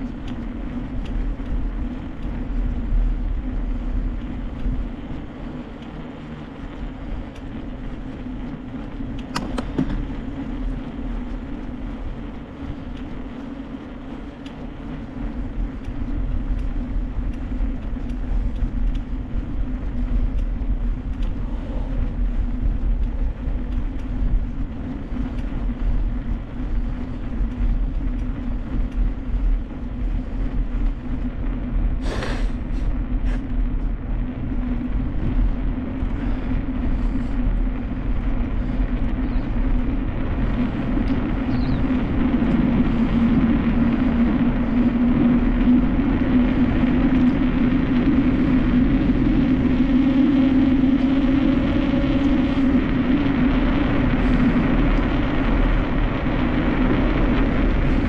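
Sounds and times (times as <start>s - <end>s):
small clicks and rattles: 0.0s - 31.8s
bike tyre hum: 0.0s - 58.0s
wind rumble on microphone: 0.0s - 58.0s.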